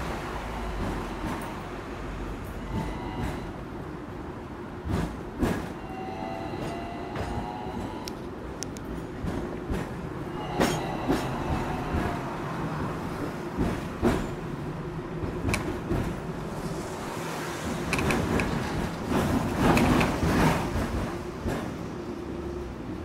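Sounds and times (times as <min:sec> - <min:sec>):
tram running hum: 0:00.0 - 0:23.0
wheels knocking on rails: 0:13.3 - 0:16.3.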